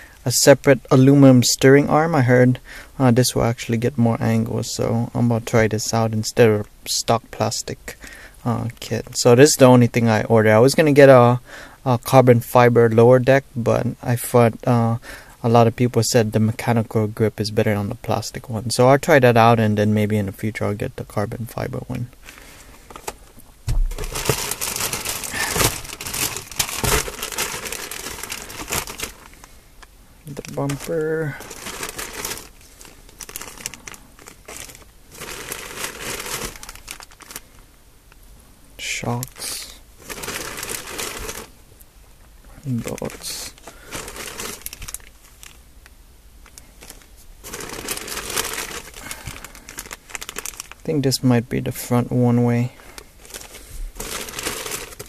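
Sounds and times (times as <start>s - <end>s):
plastic bags crinkling: 22.3s - 29.6s, 30.2s - 37.6s, 40.0s - 41.6s, 42.8s - 45.6s, 46.4s - 50.9s, 52.9s - 55.0s
bump: 23.6s - 29.0s.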